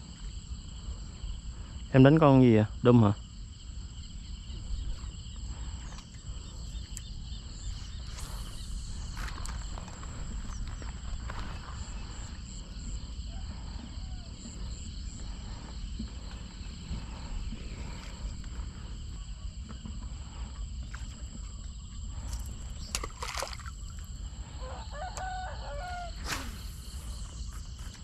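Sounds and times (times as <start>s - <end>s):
insects calling: 0.0s - 28.0s
low rumble: 7.4s - 22.7s.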